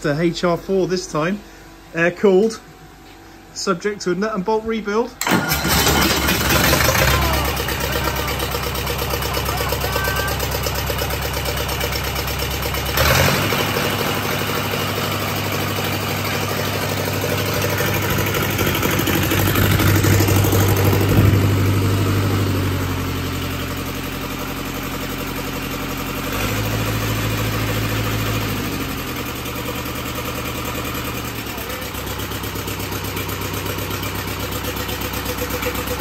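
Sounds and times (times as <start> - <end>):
diesel engine running: 2.8 - 36.0.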